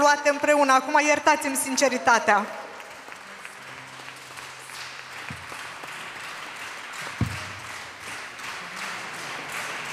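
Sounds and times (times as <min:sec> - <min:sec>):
audience applauding: 0:02.7 - 0:09.9.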